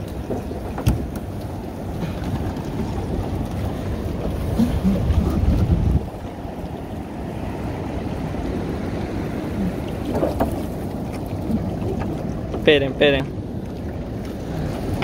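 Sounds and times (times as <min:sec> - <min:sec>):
water moving around boat: 0:00.0 - 0:15.0
wind rumbling on microphone: 0:00.0 - 0:15.0.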